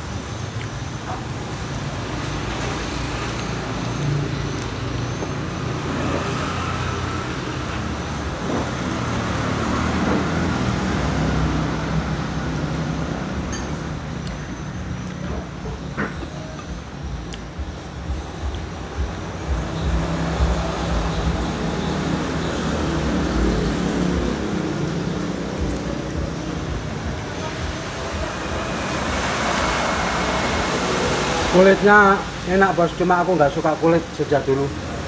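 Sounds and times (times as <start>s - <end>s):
road traffic rumble: 0.0s - 35.0s
vehicle passing: 16.5s - 35.0s.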